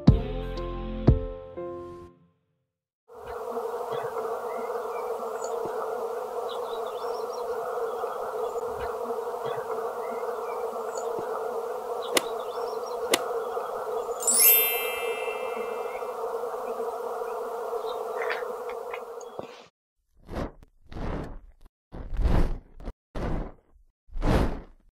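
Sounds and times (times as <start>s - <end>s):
bees buzzing: 3.1s - 19.7s.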